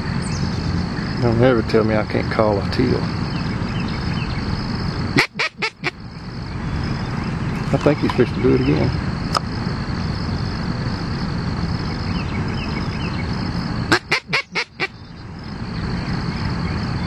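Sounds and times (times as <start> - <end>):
duck call quacks: 5.2 - 6.0, 13.9 - 14.9.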